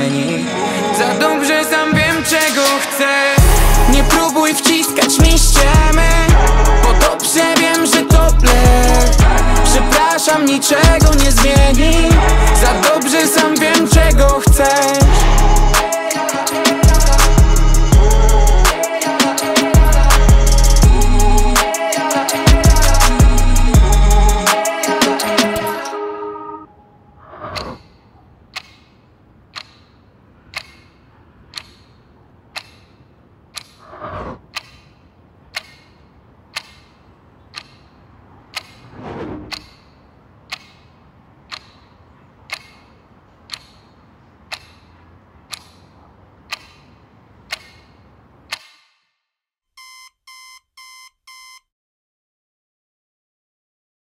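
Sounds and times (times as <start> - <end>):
low hum: 3.4 - 4.2, 8.2 - 10.0
clock ticking: 28.5 - 33.8, 34.5 - 34.9, 35.5 - 38.9, 39.5 - 46.9, 47.5 - 48.8
alarm clock beeps: 49.8 - 51.7.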